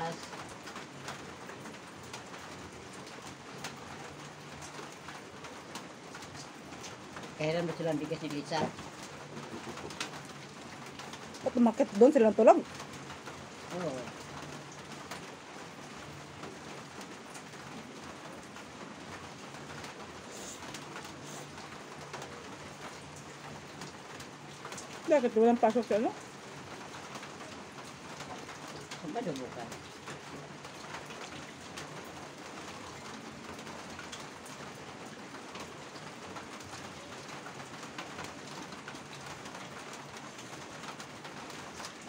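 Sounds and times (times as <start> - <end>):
steady rain falling: 0.0 - 42.0
steady hiss: 20.2 - 21.6.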